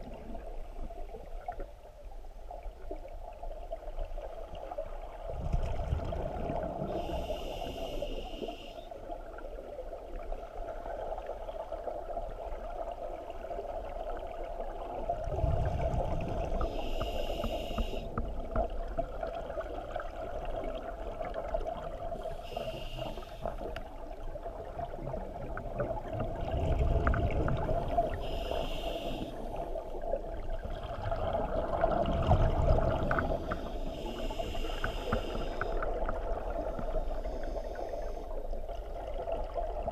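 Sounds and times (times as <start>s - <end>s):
exhaled bubbles rumbling: 0.0s - 7.6s, 9.0s - 39.9s
regulator inhale hiss: 6.8s - 9.0s, 16.5s - 18.2s, 22.2s - 23.8s, 28.1s - 29.6s, 33.2s - 36.0s, 36.8s - 38.5s.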